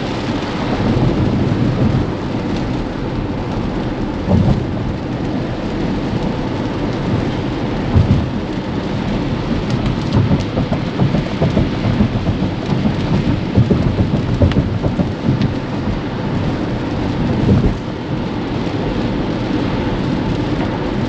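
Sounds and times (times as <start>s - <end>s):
low cabin rumble: 0.0s - 21.0s
rain and tyre hiss on wet road: 0.0s - 21.0s
low thumps: 4.3s - 5.0s, 7.1s - 8.6s, 9.5s - 16.2s, 17.2s - 17.8s.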